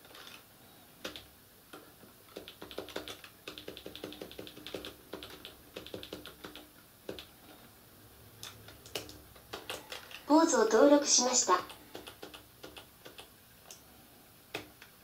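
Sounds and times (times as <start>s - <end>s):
keyboard typing: 1.0s - 7.4s, 8.4s - 10.3s, 11.4s - 13.8s.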